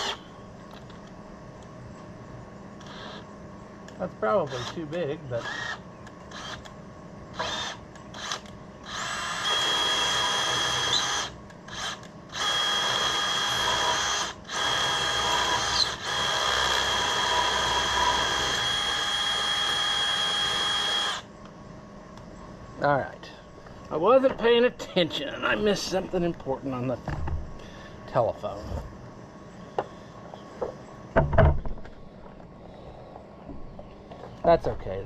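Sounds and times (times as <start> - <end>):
power drill whining into steel: 0.0 - 0.3, 2.8 - 3.2, 5.4 - 6.7, 7.4 - 21.3.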